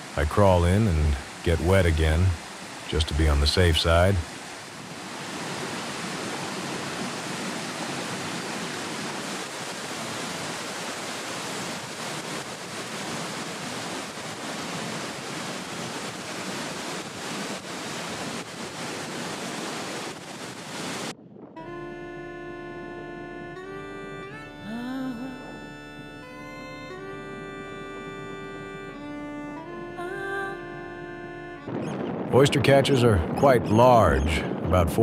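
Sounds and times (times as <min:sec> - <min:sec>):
waterfall rushing: 0:00.0 - 0:21.1.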